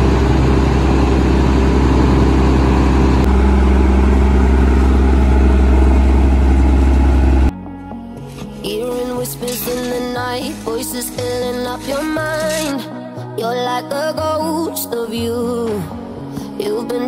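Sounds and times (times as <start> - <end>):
diesel engine droning: 0.0 - 12.8.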